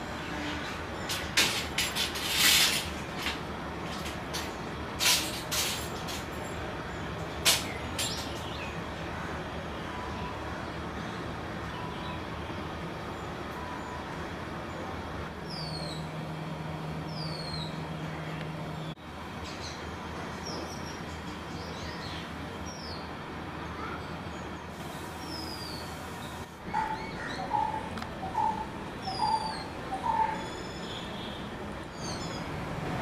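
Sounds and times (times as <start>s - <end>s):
bird whining calls: 25.2s - 31.1s.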